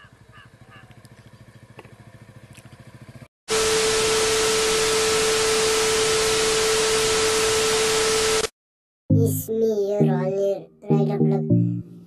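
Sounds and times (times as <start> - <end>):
motorcycle engine running: 0.0 - 7.2.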